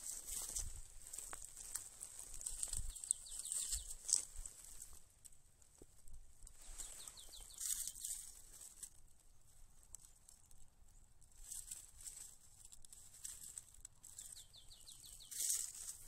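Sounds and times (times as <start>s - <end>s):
birds chirping: 2.2s - 4.2s, 6.5s - 8.4s, 14.0s - 16.0s.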